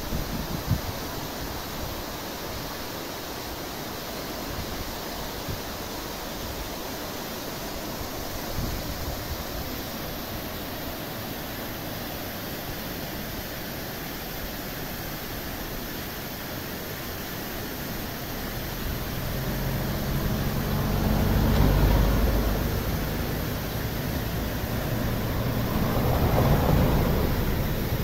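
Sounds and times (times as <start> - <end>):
steady rushing noise: 0.0 - 28.0
vehicle engine passing close: 18.1 - 28.0.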